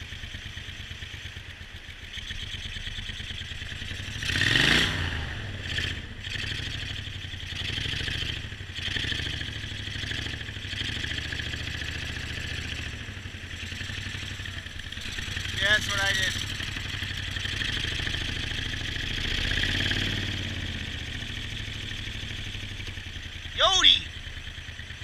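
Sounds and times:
outboard motor running: 13.3 - 19.1.

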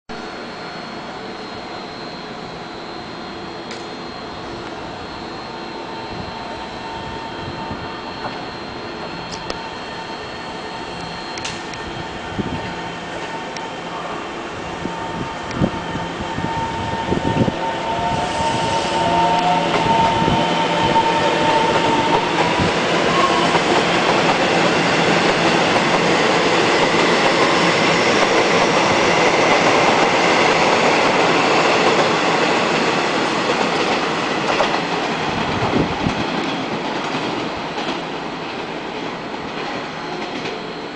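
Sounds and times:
thin high whine: 0.1 - 35.8
train wheels rumbling on rails: 3.6 - 40.9.

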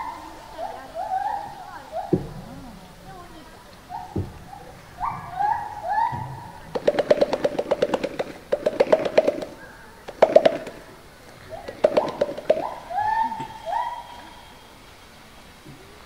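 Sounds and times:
gorilla chest beating: 3.9 - 13.9.

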